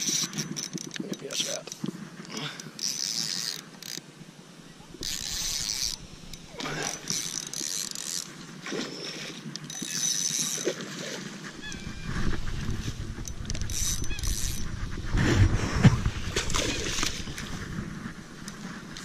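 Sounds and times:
fishing reel whirring: 0.0s - 1.7s, 2.4s - 4.0s, 4.9s - 14.9s.

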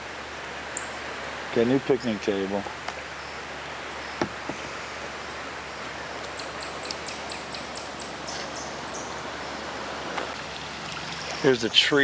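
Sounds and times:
kayak gliding through water: 2.6s - 11.9s
light knocks: 4.2s - 4.8s.

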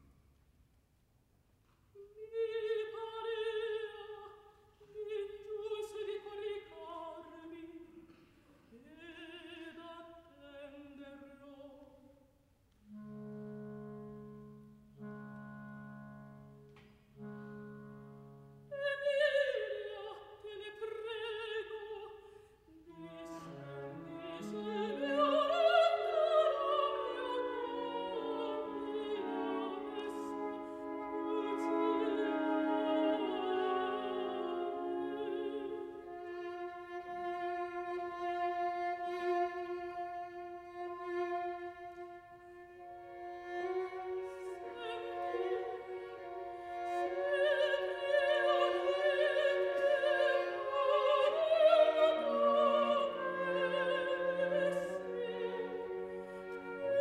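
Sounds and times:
orchestra playing: 23.0s - 57.0s.

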